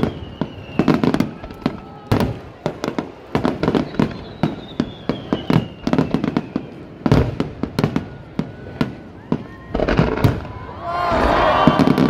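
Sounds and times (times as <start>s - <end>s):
faint falling whistle: 0.0s - 1.7s, 3.8s - 6.8s
fireworks bursting: 0.0s - 12.0s.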